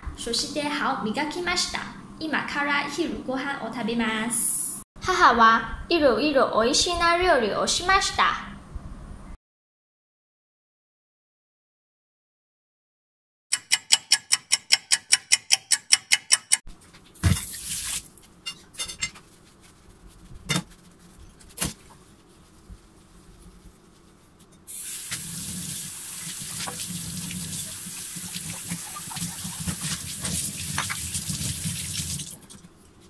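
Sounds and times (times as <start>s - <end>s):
tap water running into sink: 24.7s - 32.7s.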